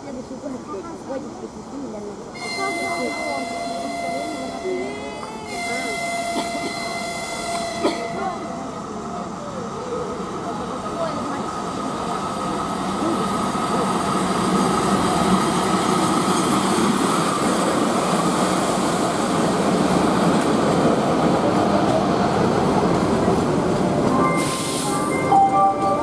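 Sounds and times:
train wheels rumbling on rail: 0.0 - 26.0
short hisses: 24.4 - 25.1.

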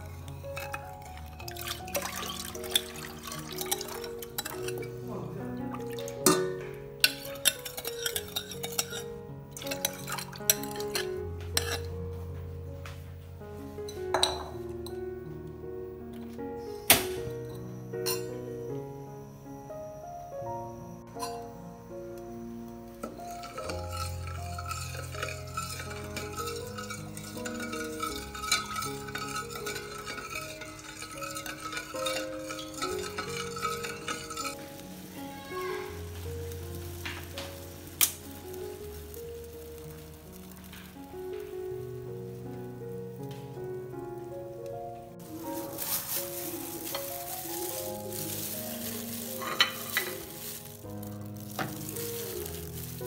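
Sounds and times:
background music: 0.0 - 53.0
ladle stirring in metal pot: 0.5 - 5.0, 5.7 - 12.0, 23.0 - 34.9, 45.2 - 53.0
liquid pouring into pot: 0.6 - 4.9, 5.7 - 9.0
spoon scraping ceramic bowl: 7.1 - 11.9, 23.4 - 34.6.

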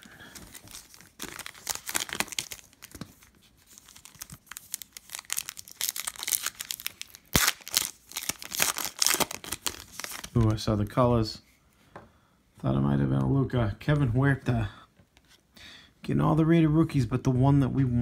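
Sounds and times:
foil wrapper crinkling and tearing: 0.2 - 10.6.

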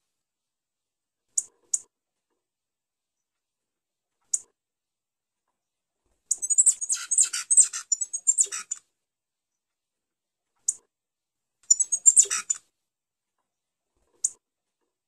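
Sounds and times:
finch chirping: 6.3 - 8.8, 11.7 - 12.6.

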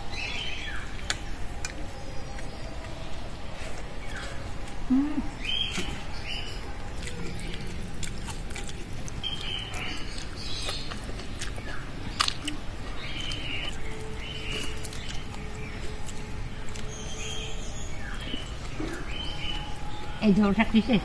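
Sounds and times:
birds calling in high notes: 11.6 - 21.0.

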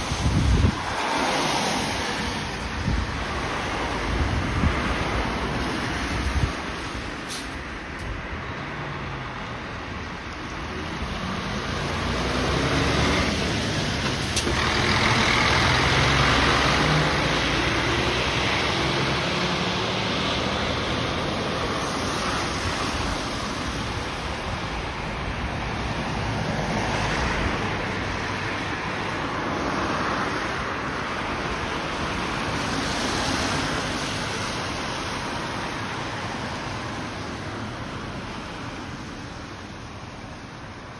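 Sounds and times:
traffic and tyres on wet road: 0.0 - 40.9
bus diesel engine revving: 11.0 - 21.7.

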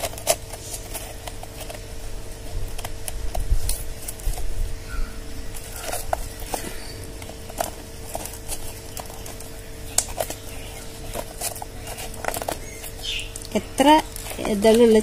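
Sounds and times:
faint steady hum: 0.0 - 15.0
hands clicking and rustling: 5.5 - 15.0.

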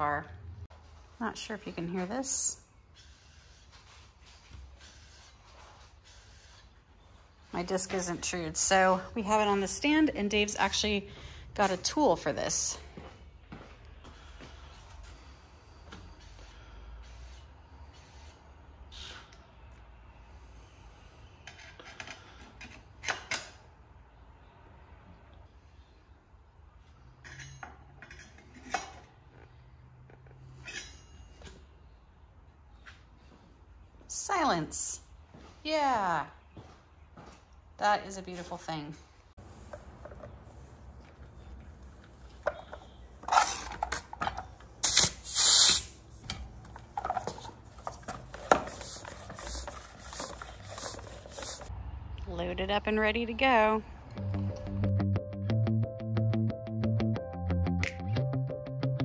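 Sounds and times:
air hissing from tyre valve: 16.1 - 19.4, 44.8 - 46.2.

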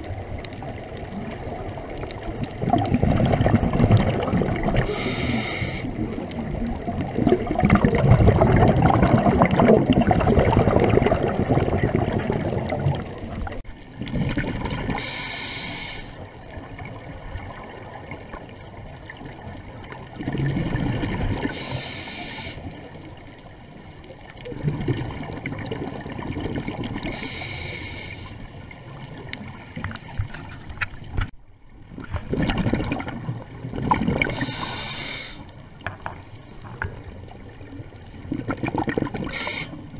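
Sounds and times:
exhaled bubbles burbling: 0.0 - 15.2, 16.5 - 21.7, 24.2 - 27.3, 31.8 - 34.8, 35.8 - 39.9
regulator hiss on inhale: 4.8 - 6.0, 14.9 - 16.4, 21.5 - 22.9, 27.1 - 28.6, 34.3 - 35.6, 39.2 - 39.9.

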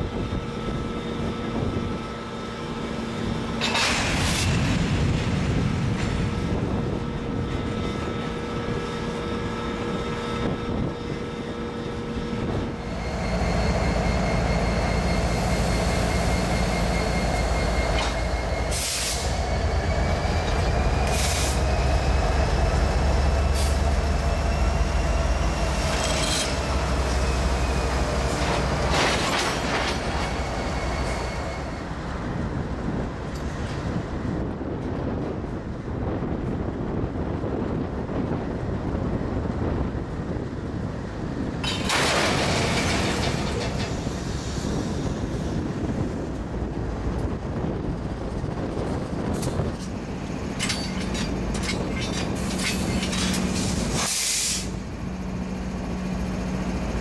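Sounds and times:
diesel locomotives running: 0.0 - 57.0
wheel flanges squealing: 23.4 - 32.0, 49.8 - 54.0.

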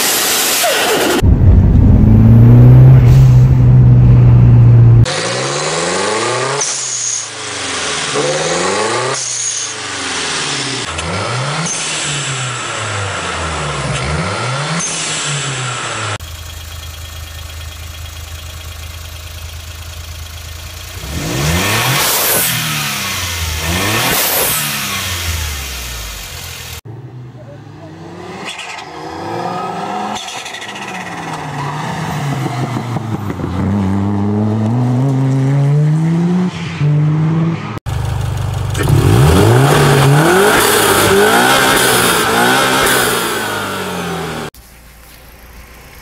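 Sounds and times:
car engine revving: 0.0 - 44.6
car engine idling: 16.2 - 21.6, 37.9 - 46.0.

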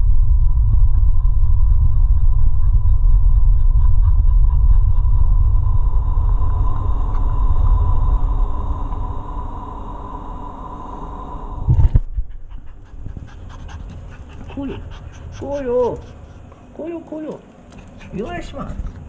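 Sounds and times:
microphone handling rumble: 0.0 - 9.0, 11.6 - 12.3
faint steady whine: 0.0 - 19.0.

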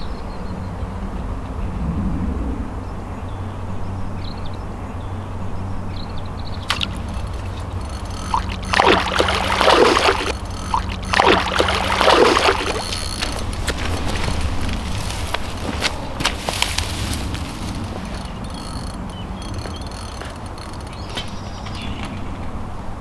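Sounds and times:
steady low hum: 4.6 - 22.0
sharp click: 6.6 - 22.1
fish splashing at surface: 6.7 - 15.6.

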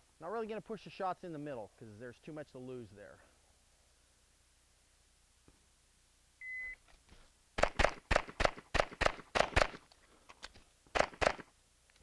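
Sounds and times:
shot timer beep: 6.4 - 6.8
pistol shots: 7.6 - 9.8, 10.9 - 11.5.

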